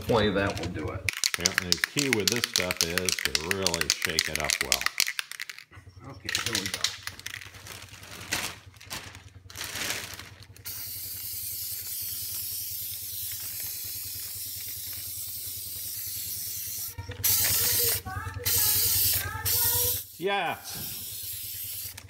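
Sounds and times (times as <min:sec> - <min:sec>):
spray paint can hissing: 0:01.1 - 0:05.6, 0:10.6 - 0:22.0
clatter and rustle: 0:05.0 - 0:10.6.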